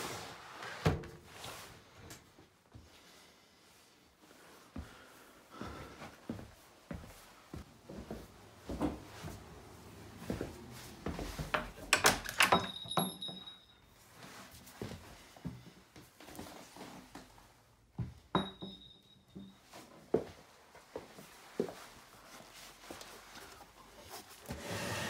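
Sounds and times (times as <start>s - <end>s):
high ringing tone: 12.4s - 14.0s, 18.4s - 19.7s.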